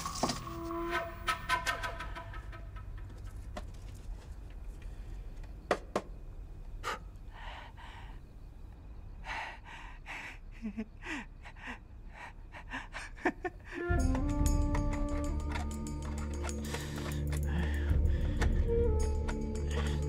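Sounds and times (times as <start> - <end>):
person laughing breathily: 10.1 - 14.0
breathy exhalations: 16.5 - 18.6.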